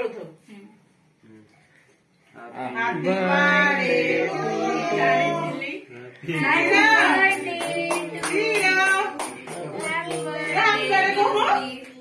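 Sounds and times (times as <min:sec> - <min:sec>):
women and children singing: 0:02.8 - 0:12.0
hand claps: 0:06.9 - 0:10.8.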